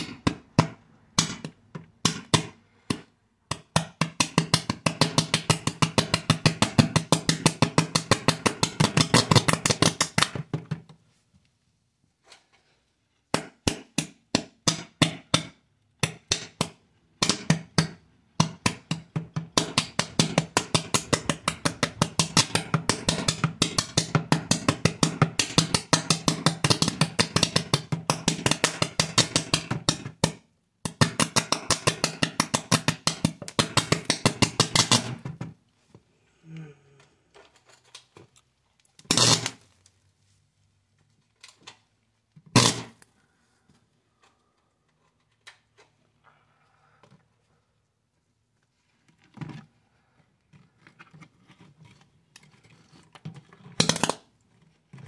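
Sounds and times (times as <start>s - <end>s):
electric arcs snapping: 39.1s - 39.6s, 42.6s - 43.0s.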